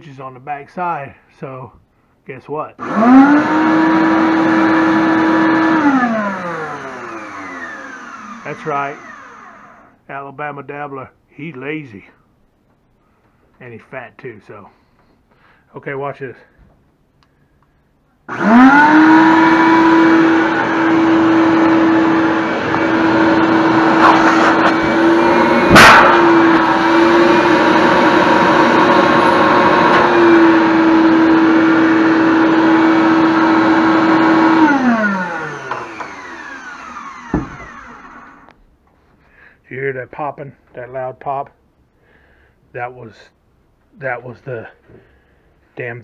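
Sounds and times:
shop vac motor whining: 0:02.8 - 0:10.0, 0:18.3 - 0:38.6
loud pop of steel lid: 0:25.7 - 0:26.2.

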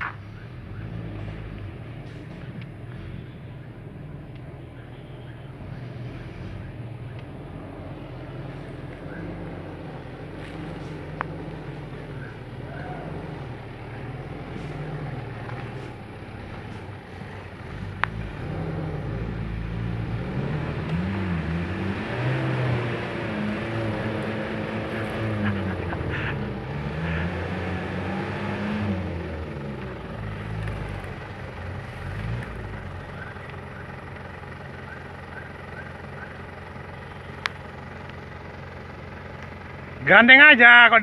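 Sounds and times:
truck engine revving: 0:00.0 - 0:41.0.

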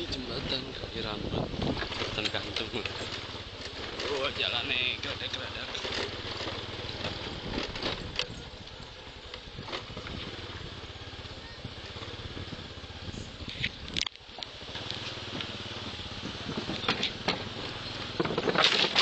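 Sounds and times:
motor scooter engine: 0:00.0 - 0:19.0
knocks and rattles: 0:15.3 - 0:19.0.

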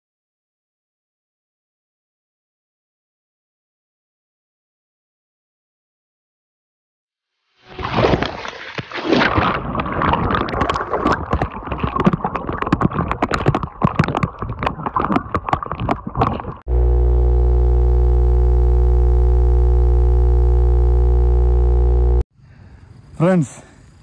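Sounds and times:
loud electronic buzz with hum: 0:16.7 - 0:22.3.

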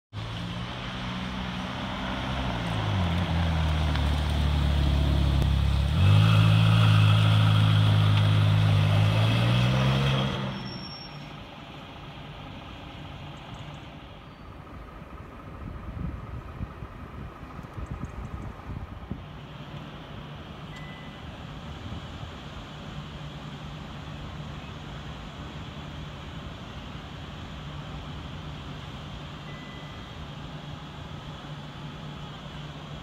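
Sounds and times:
car engine revving: 0:00.2 - 0:10.7.

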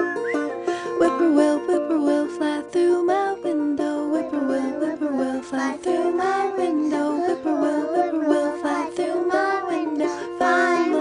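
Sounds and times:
plucked string instrument: 0:00.0 - 0:11.0
children singing: 0:03.1 - 0:11.0.

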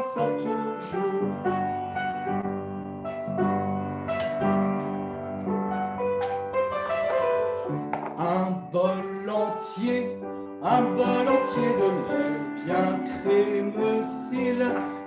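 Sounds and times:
person singing: 0:00.0 - 0:01.7, 0:08.0 - 0:15.0
piano accompaniment: 0:00.0 - 0:15.0.

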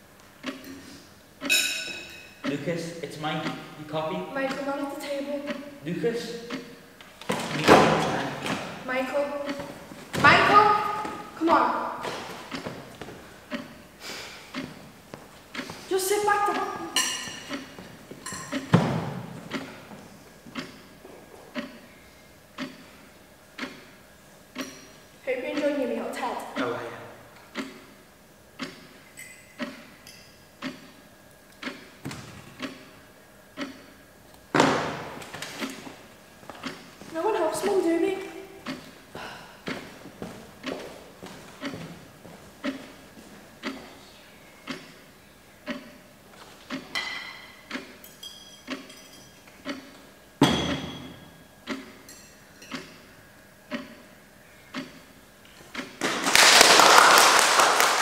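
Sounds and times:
clock ticking: 0:00.4 - 0:00.8, 0:02.4 - 0:06.8, 0:07.5 - 0:12.7, 0:13.4 - 0:13.9, 0:14.5 - 0:14.8, 0:15.4 - 0:18.7, 0:19.5 - 0:19.9, 0:20.5 - 0:21.9, 0:22.5 - 0:26.8, 0:27.4 - 0:28.0, 0:28.6 - 0:29.0, 0:29.6 - 0:30.0, 0:30.6 - 0:34.0, 0:36.6 - 0:39.0, 0:39.6 - 0:40.0, 0:40.6 - 0:40.9, 0:41.6 - 0:41.9, 0:42.6 - 0:43.0, 0:43.6 - 0:44.0, 0:44.6 - 0:46.0, 0:46.7 - 0:48.1, 0:48.7 - 0:49.0, 0:49.6 - 0:50.0, 0:51.6 - 0:52.1, 0:52.7 - 0:53.1, 0:53.7 - 0:54.1, 0:54.7 - 0:56.0
cutlery and china clinking: 0:01.5 - 0:02.4, 0:46.9 - 0:49.5.

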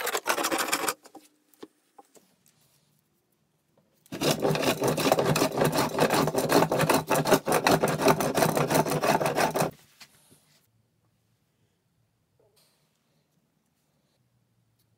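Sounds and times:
hand plane cutting wood: 0:04.1 - 0:09.8.

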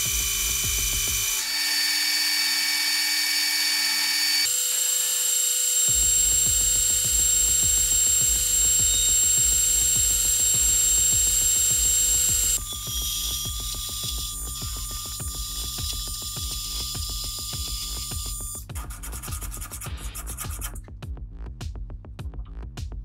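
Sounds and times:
electronic music with beat: 0:00.0 - 0:01.4, 0:05.9 - 0:23.0
metal lathe whining: 0:00.0 - 0:18.2.

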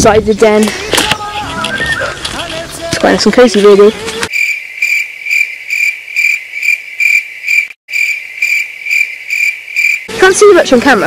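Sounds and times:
insect chirping trill: 0:04.3 - 0:10.2.

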